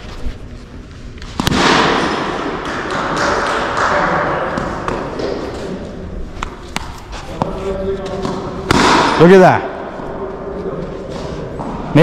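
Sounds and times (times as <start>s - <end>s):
cricket bat hitting ball: 1.4s - 3.8s, 8.2s - 9.2s.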